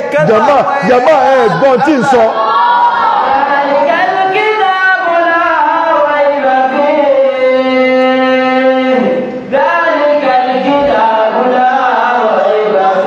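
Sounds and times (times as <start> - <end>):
man singing a chant: 3.3 - 13.0.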